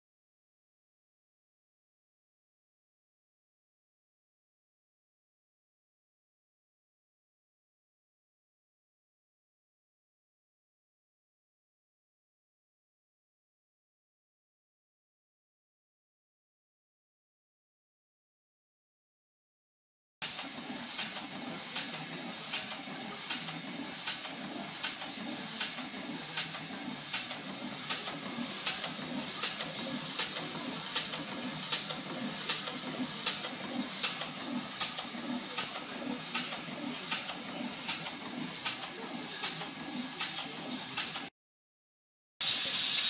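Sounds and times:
model steam engine chuffing: 0:20.2 - 0:41.3, 0:42.4 - 0:43.0.

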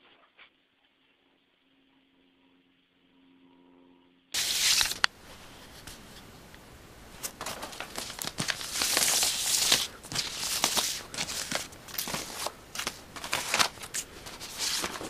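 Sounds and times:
paper rustling and crinkling: 0:04.4 - 0:15.0.

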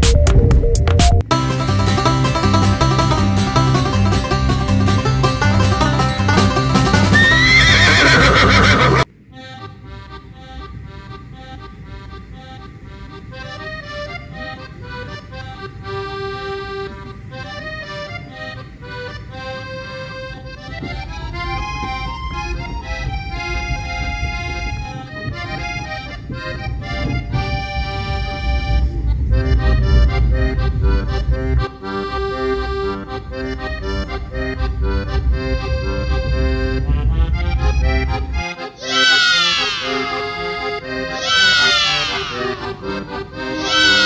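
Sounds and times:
instrumental music: 0:00.0 - 0:44.0
low rumble: 0:27.2 - 0:31.8, 0:32.9 - 0:38.5.

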